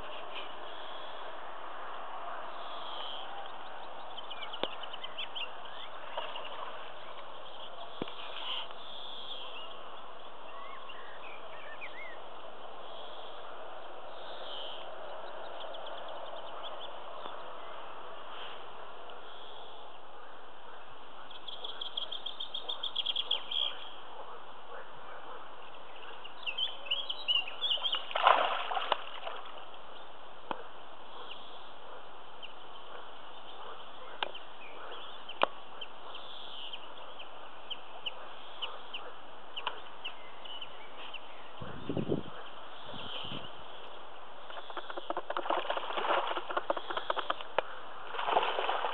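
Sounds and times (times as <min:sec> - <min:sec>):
fish splashing in water: 0:27.7 - 0:29.6, 0:44.7 - 0:48.9.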